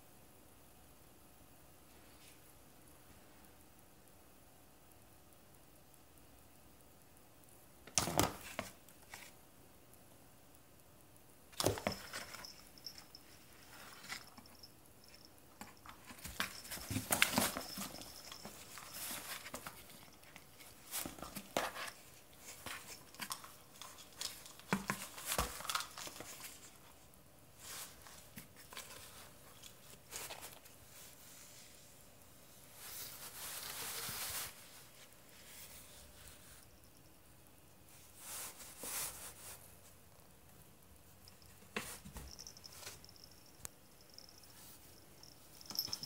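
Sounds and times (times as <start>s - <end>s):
cat scrambling in cardboard box: 15.9s - 20.0s.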